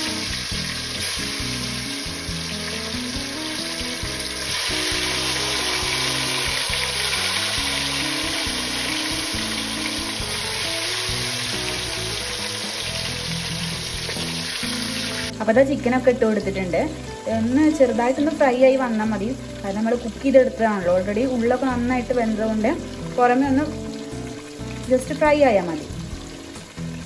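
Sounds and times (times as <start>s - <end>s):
chicken sizzling in hot oil: 0.0s - 27.0s
light background music: 0.0s - 27.0s.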